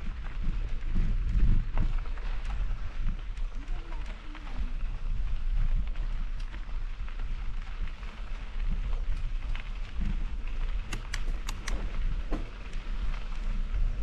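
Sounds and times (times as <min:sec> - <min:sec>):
tyres crackling over dirt: 0:00.0 - 0:14.0
wind rumble on microphone: 0:00.0 - 0:14.0
sharp clicks: 0:10.8 - 0:11.9.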